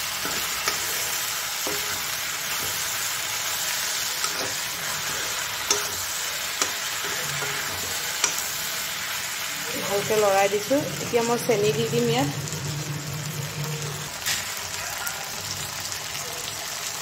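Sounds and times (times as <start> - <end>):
food sizzling in hot oil: 0.0 - 17.0
steel spoon clicking against pan: 5.6 - 8.5.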